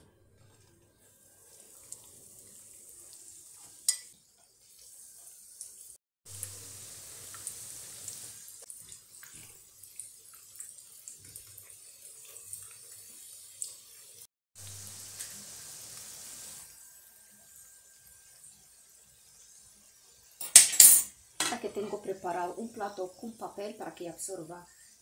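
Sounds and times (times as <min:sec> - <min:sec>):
food sizzling in hot oil: 0:00.4 - 0:25.0
fork clinking against pan: 0:03.9 - 0:04.1.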